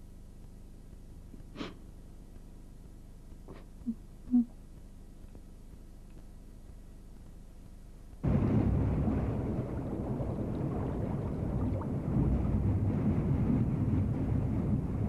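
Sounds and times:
ferry engine rumbling: 8.3s - 15.0s.

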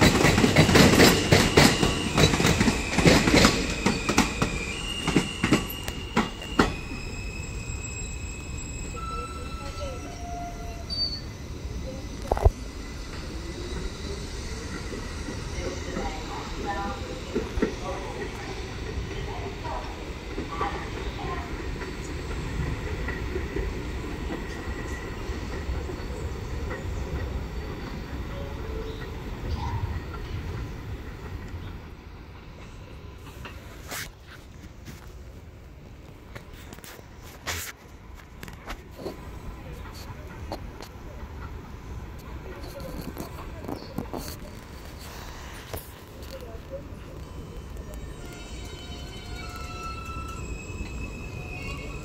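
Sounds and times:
train wheel clacks: 0.0s - 7.1s, 12.2s - 28.2s
low train rumble: 0.0s - 52.0s
steady high squeal: 1.1s - 17.3s, 47.1s - 52.0s.

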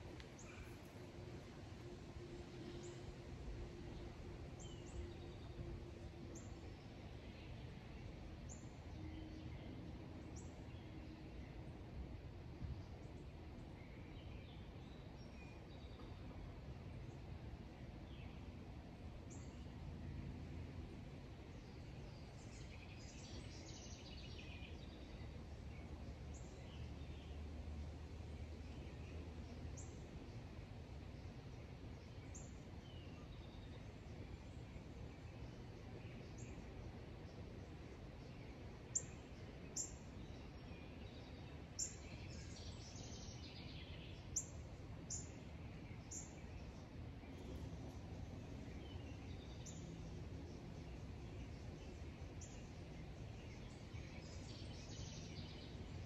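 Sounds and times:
outdoor background noise: 0.0s - 56.0s
steady low hum: 0.0s - 56.0s
small birds chirping: 28.5s - 56.0s.

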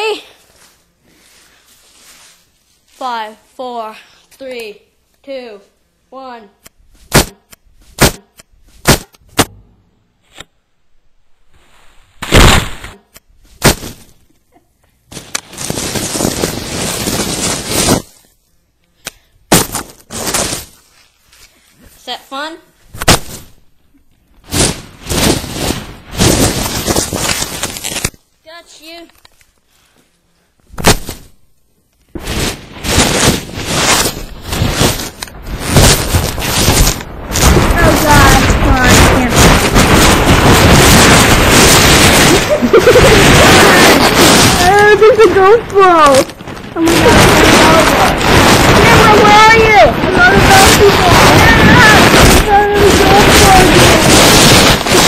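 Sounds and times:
foam packing peanuts rustling: 0.0s - 3.4s, 11.5s - 14.3s, 15.1s - 18.4s, 19.5s - 22.4s, 24.4s - 30.0s, 30.8s - 31.4s, 32.1s - 55.0s
loud scraping: 32.2s - 55.0s.

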